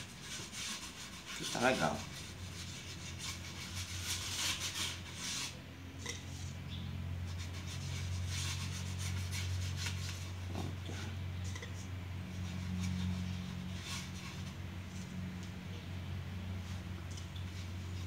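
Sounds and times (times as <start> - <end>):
hand scrubbing salt on wooden board: 0.0 - 5.6.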